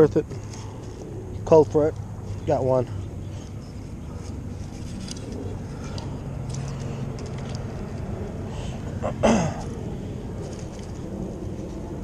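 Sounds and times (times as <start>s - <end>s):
handling clicks and rustles: 0.0s - 8.9s, 9.6s - 12.0s
road traffic hum: 0.0s - 12.0s.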